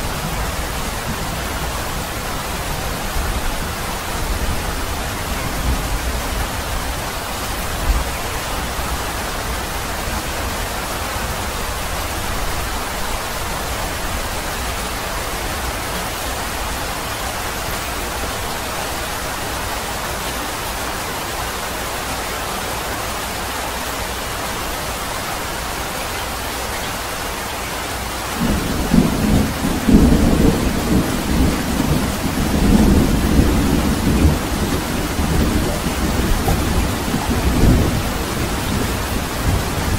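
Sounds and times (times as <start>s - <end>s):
steady rain falling: 0.0s - 39.9s
rolling rumble of thunder: 28.4s - 39.9s.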